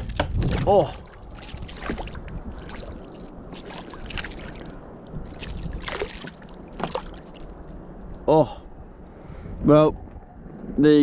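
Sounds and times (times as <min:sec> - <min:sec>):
fish thrashing at surface: 0:00.0 - 0:07.6
water sloshing beside kayak: 0:00.0 - 0:08.8.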